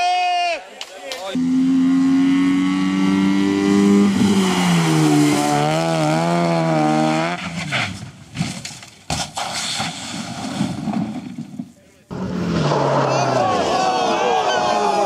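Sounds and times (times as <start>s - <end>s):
rally car engine revving: 1.4s - 8.1s, 12.1s - 14.4s
car crashing and thudding: 7.2s - 13.0s.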